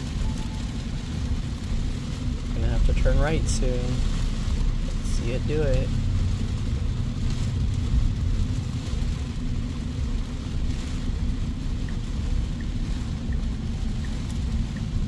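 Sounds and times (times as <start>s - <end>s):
faint turn signal ticking: 0.0s - 15.0s
rain: 0.0s - 15.0s
tyres rumbling on wet road: 0.0s - 15.0s.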